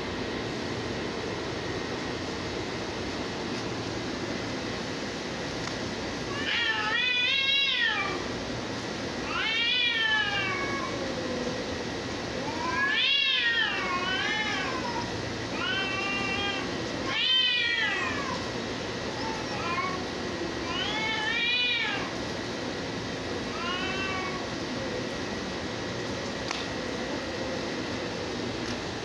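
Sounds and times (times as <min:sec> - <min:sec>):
cats yowling: 0:06.2 - 0:08.4, 0:09.2 - 0:28.5.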